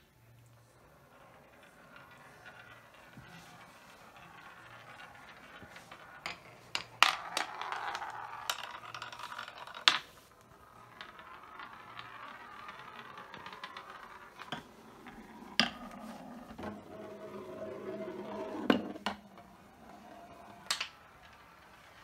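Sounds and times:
marble rolling on track: 0.3 - 22.0
marble clicking and knocking: 1.0 - 22.0.

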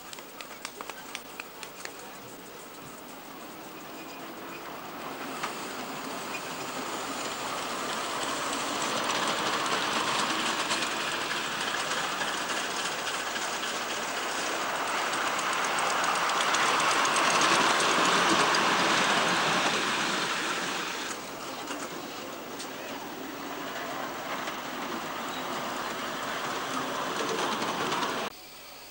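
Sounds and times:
miniature steam train running: 0.0 - 28.3.

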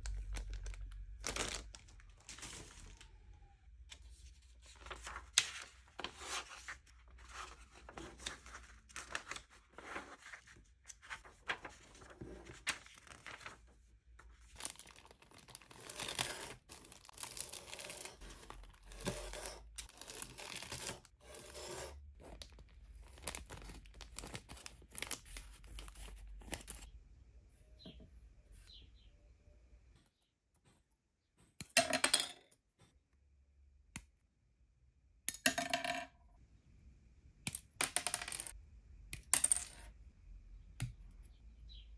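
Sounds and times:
plastic bag crinkling and tearing: 0.0 - 3.1, 14.5 - 21.0
paper pages rustling: 0.0 - 3.2, 3.9 - 26.9.

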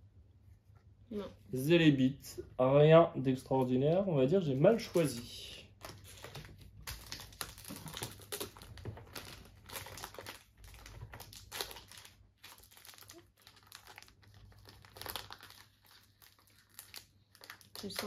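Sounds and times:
foil wrapper crinkling: 4.6 - 18.0.

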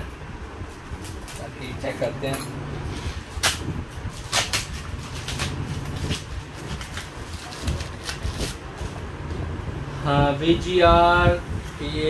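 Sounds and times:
low steady hum: 0.0 - 12.0
packaging crinkling and tearing: 3.3 - 9.0.

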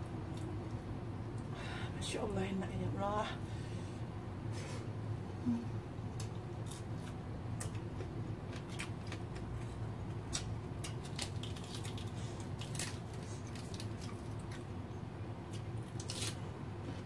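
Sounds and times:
steady low hum: 0.0 - 17.0
wet chewing smacks and crackles: 6.2 - 14.8
lettuce leaf being torn: 10.3 - 14.6, 15.5 - 16.4.

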